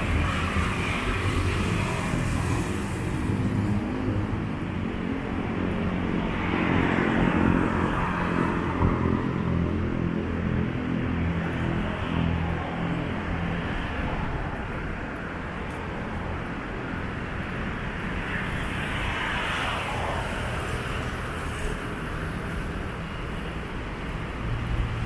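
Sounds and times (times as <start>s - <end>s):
motorbikes passing: 0.0s - 14.6s
cars passing: 0.0s - 25.0s.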